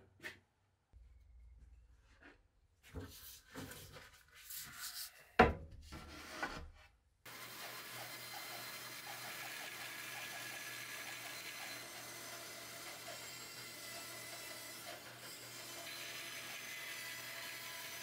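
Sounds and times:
wooden boards sliding on workbench: 0:05.5 - 0:06.8
band saw cutting wood: 0:07.3 - 0:18.0.

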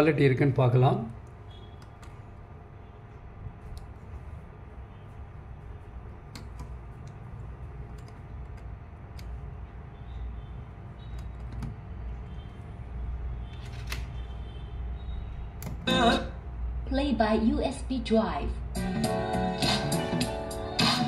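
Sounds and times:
low background hum: 0:00.0 - 0:19.6
pen drive clicks and taps: 0:11.1 - 0:11.8.

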